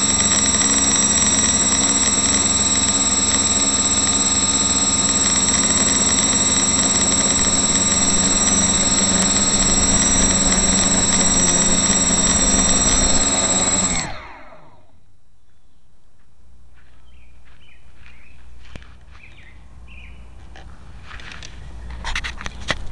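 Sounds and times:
quadcopter motors whining: 0.0s - 14.9s.

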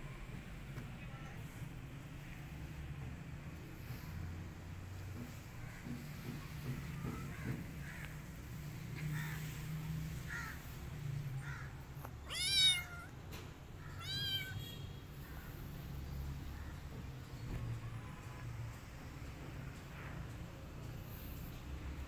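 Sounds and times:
kitten meowing: 12.2s - 13.2s, 13.8s - 14.6s.

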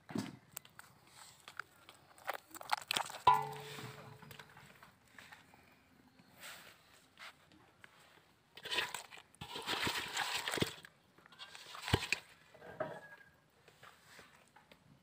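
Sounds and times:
muddy water sloshing: 8.6s - 12.4s.

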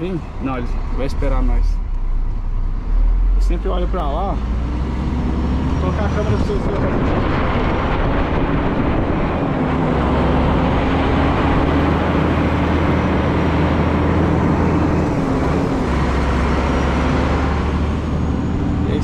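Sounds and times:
road noise: 0.0s - 19.0s
truck diesel engine running: 0.0s - 19.0s.

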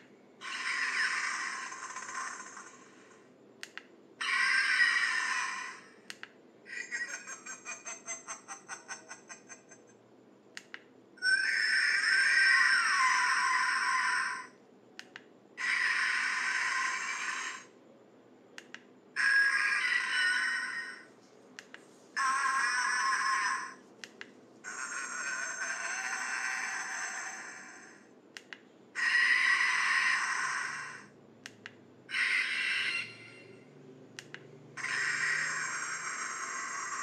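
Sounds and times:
toy monster cries through tinny speaker: 0.4s - 3.1s, 4.2s - 6.0s, 11.2s - 14.6s, 15.6s - 17.7s, 19.2s - 21.1s, 22.2s - 23.8s, 24.6s - 28.1s, 29.0s - 31.1s, 32.1s - 33.6s, 34.8s - 37.0s.

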